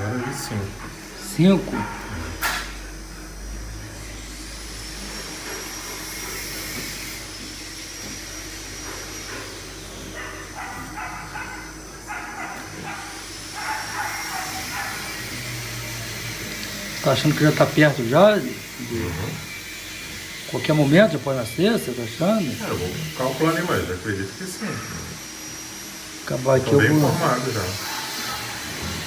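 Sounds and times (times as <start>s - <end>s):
dogs barking: 0.0s - 3.4s, 8.4s - 19.5s, 26.6s - 29.0s
steady low hum: 0.0s - 23.2s.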